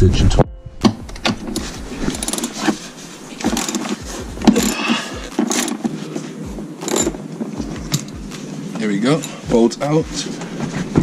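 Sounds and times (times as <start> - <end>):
socket ratchet clicking: 1.0 - 2.7, 3.4 - 5.9, 6.8 - 7.2, 7.8 - 8.3.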